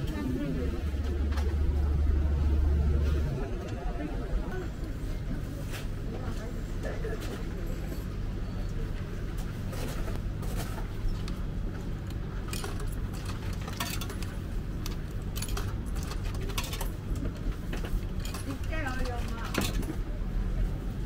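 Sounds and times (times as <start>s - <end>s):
low background hum: 0.0s - 21.0s
coins clinking into coin slot: 12.5s - 14.3s, 14.9s - 17.0s.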